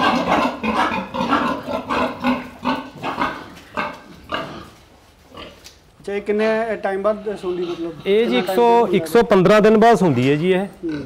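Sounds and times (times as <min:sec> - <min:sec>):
pig grunting: 0:00.0 - 0:05.6, 0:06.7 - 0:09.1, 0:10.7 - 0:11.0.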